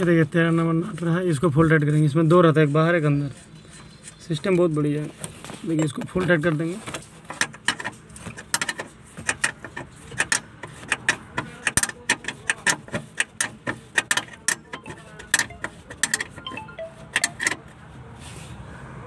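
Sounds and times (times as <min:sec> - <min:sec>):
ring spanner clicking on nut: 0:08.5 - 0:16.5.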